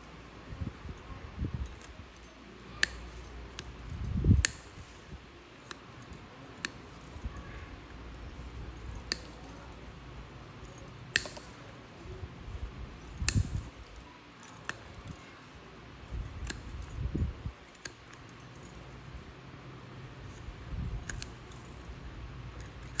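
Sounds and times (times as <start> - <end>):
toenail nippers clicking: 1.5 - 11.7, 13.0 - 15.3, 16.1 - 18.8, 20.3 - 23.0.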